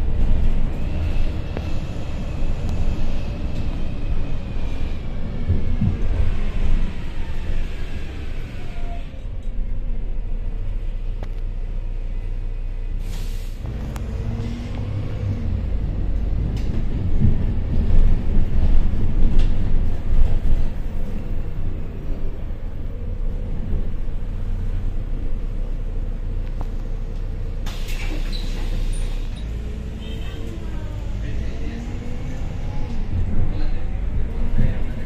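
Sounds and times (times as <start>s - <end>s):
bus engine and road rumble: 0.0s - 35.0s
short hiss: 13.0s - 13.6s, 27.6s - 29.4s.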